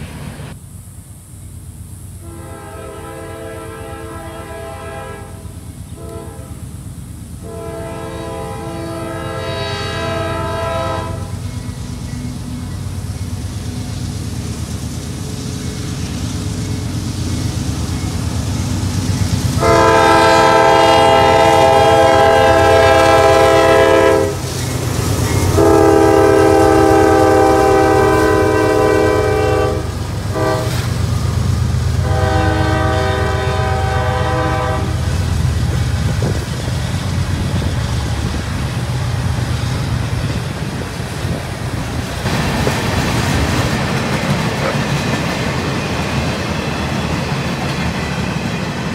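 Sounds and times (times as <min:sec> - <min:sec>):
locomotive engine rumble: 0:00.0 - 0:48.9
locomotive air horn blasts: 0:02.2 - 0:06.7, 0:07.4 - 0:11.5, 0:19.6 - 0:24.5, 0:25.4 - 0:31.0, 0:32.0 - 0:36.4
train wheels clattering on rails: 0:11.1 - 0:48.9.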